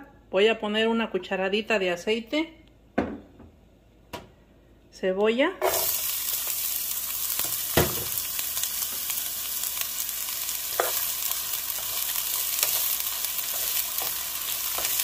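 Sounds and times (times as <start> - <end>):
onion sizzling in oil: 5.6 - 15.0.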